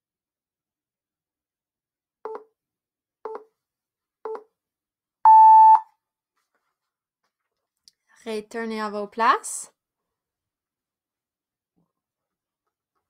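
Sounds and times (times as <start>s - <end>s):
countdown timer beeps: 5.3s - 5.8s.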